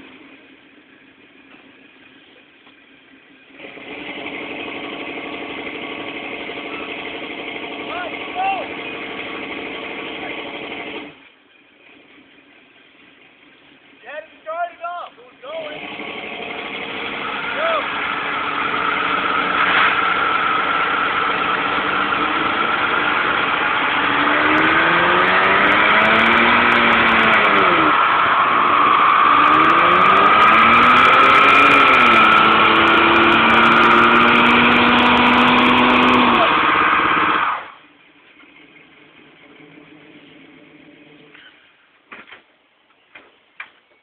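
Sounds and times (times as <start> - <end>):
car engines revving: 0.0 - 14.5, 15.3 - 41.6
tyres screeching: 13.6 - 37.8, 41.2 - 42.3.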